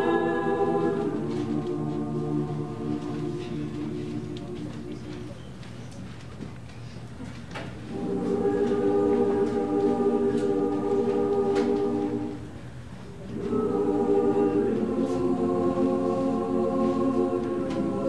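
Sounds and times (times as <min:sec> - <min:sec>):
women's choir singing: 0:00.0 - 0:05.4, 0:07.9 - 0:18.0.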